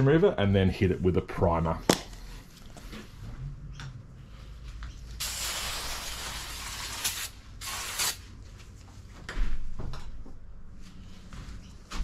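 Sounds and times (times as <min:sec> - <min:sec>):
aerosol spray can hissing: 0:05.2 - 0:08.2.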